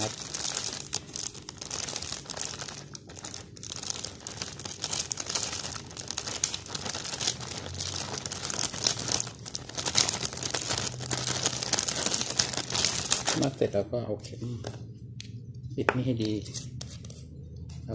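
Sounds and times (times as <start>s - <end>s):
plastic bag crinkling: 0.0s - 13.7s.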